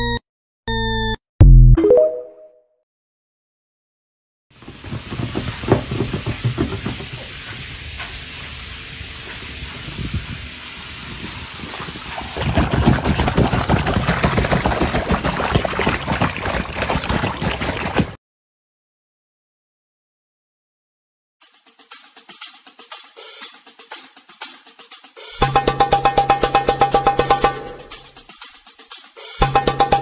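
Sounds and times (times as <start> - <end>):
water splashing in paddling pool: 4.6 - 8.6, 10.4 - 18.2.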